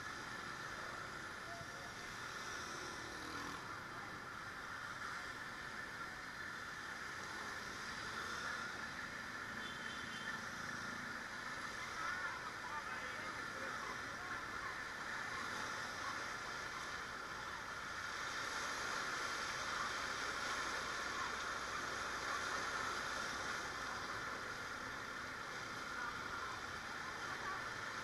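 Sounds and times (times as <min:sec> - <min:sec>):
floodwater rushing and sloshing: 0:10.5 - 0:28.0.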